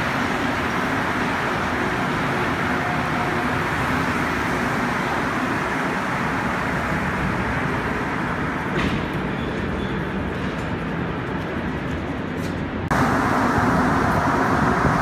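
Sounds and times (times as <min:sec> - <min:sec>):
metro train pulling in: 0:00.0 - 0:15.0
sharp clunk: 0:08.7 - 0:09.1.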